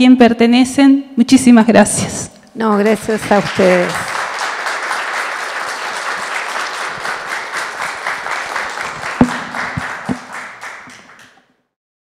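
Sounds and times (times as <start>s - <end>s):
audience applauding: 2.7s - 11.5s
sharp knocks: 8.9s - 11.4s.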